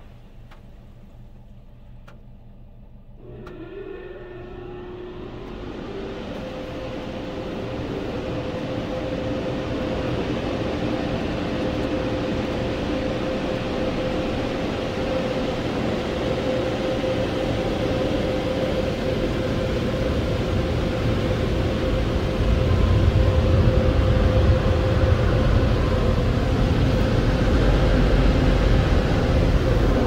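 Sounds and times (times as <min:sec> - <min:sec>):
low rumble: 0:00.8 - 0:13.8
air dryer blowers whining: 0:03.2 - 0:30.0.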